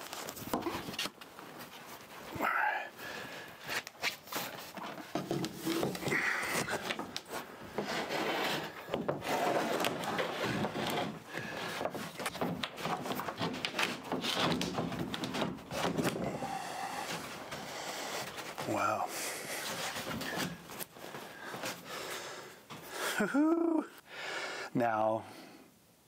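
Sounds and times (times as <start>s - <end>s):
hatch lid scraping: 4.8s - 18.6s.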